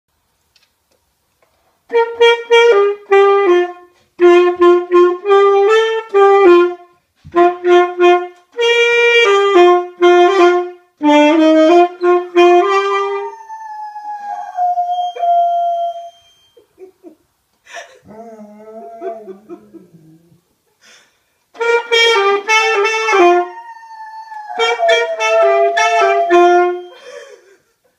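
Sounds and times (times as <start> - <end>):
saxophone melody: 1.9 - 16.6, 21.6 - 27.1.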